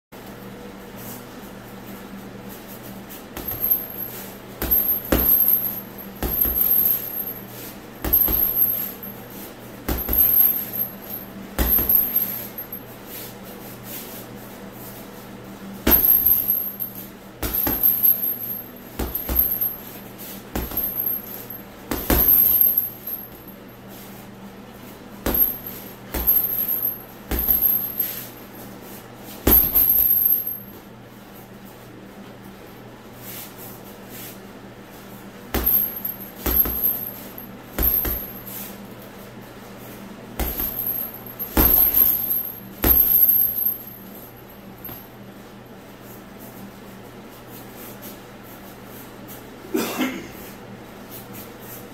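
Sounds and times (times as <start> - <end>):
punches on heavy bag: 3.4 - 7.4, 8.0 - 9.1, 9.9 - 12.7, 15.8 - 23.5, 25.2 - 28.0, 29.4 - 30.5, 35.5 - 38.6, 40.4 - 44.0.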